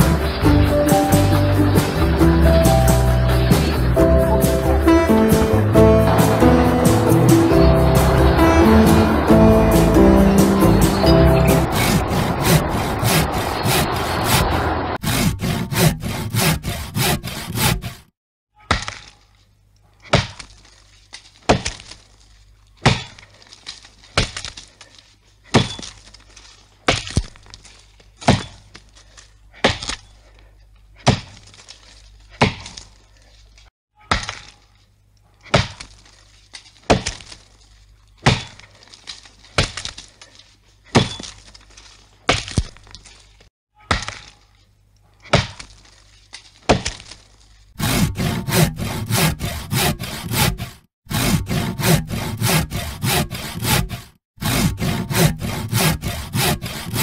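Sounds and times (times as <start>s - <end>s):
axe chopping tree trunk: 18.7s - 19.2s, 20.0s - 20.5s, 21.4s - 22.0s, 22.8s - 23.3s, 24.2s - 24.7s, 26.8s - 27.6s, 28.2s - 28.8s, 29.6s - 30.1s, 31.0s - 31.6s, 32.4s - 32.9s, 34.1s - 34.6s, 35.4s - 36.0s, 36.6s - 37.4s, 38.2s - 38.7s, 39.5s - 40.1s, 40.9s - 41.5s, 42.2s - 43.0s, 43.8s - 44.4s, 45.2s - 45.8s, 46.4s - 47.2s.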